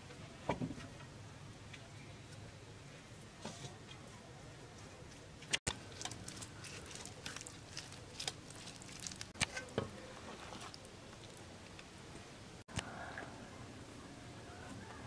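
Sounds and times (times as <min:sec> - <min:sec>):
wet squishes of hands kneading: 0:05.7 - 0:11.8.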